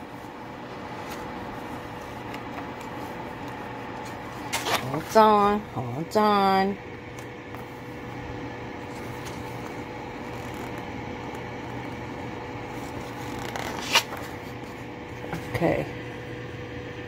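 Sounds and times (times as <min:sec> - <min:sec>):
steady background hum: 0:00.0 - 0:17.0
paper page turning: 0:08.9 - 0:10.8, 0:12.8 - 0:14.8.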